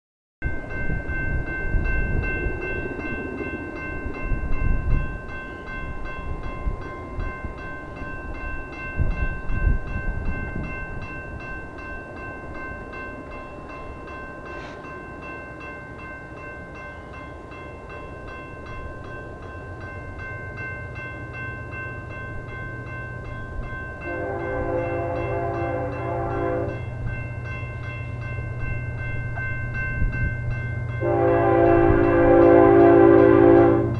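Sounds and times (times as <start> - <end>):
diesel locomotive engine rumble: 16.3 - 33.9
train air horn blast: 24.1 - 26.8, 31.0 - 33.9.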